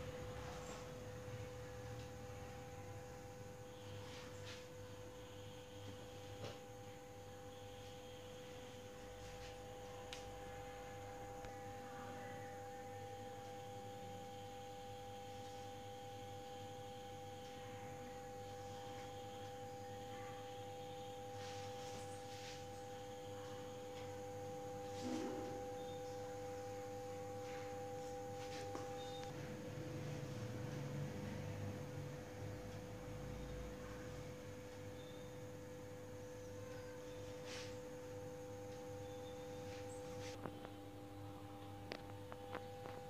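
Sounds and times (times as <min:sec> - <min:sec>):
steady pure tones: 0:00.0 - 0:43.0.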